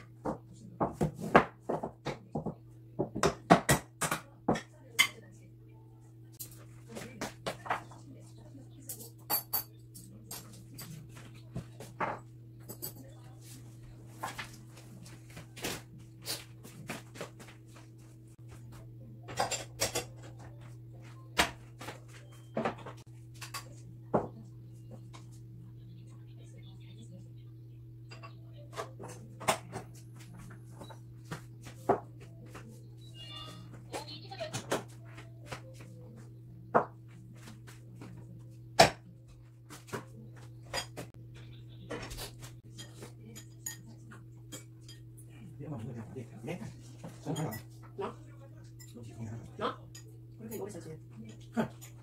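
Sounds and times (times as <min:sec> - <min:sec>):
kitchen items knocking and clicking: 0:00.0 - 0:05.2, 0:08.9 - 0:13.2, 0:18.5 - 0:25.3
clicks and knocks in kitchen: 0:19.2 - 0:24.4.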